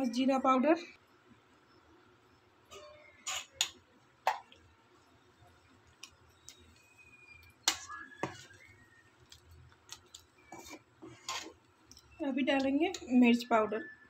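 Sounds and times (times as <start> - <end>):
stirring watery food: 3.2 - 13.2.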